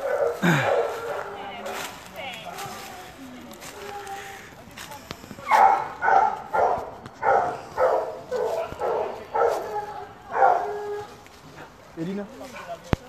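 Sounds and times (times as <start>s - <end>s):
hounds baying: 0.0s - 2.9s, 5.4s - 11.8s.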